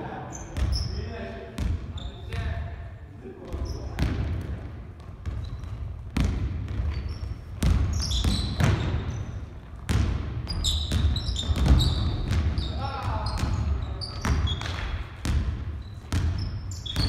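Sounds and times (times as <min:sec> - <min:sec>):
sneakers squeaking: 0:00.2 - 0:02.6, 0:03.4 - 0:17.0
basketball bouncing on hardwood: 0:04.0 - 0:12.6, 0:13.3 - 0:17.0.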